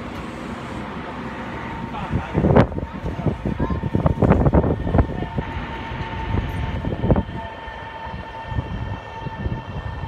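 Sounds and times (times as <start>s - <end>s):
electric train whine: 0.0s - 10.0s.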